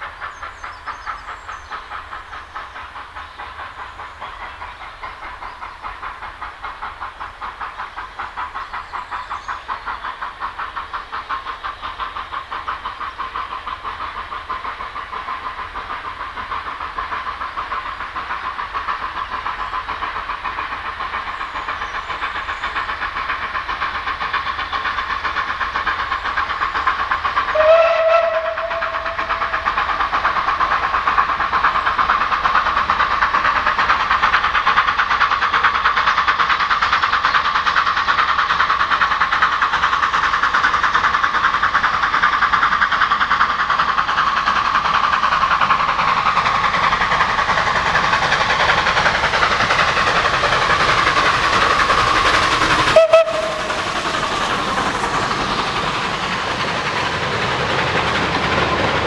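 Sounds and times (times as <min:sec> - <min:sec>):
steam locomotive exhaust beats: 0:00.0 - 0:59.0
steam locomotive whistle: 0:27.5 - 0:29.7, 0:52.8 - 0:54.0.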